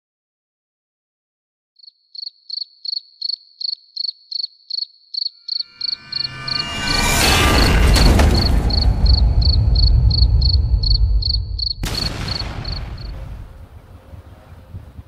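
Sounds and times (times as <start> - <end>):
cricket chirping: 1.8 - 13.1
rushing noise with deep rumble: 6.0 - 15.0.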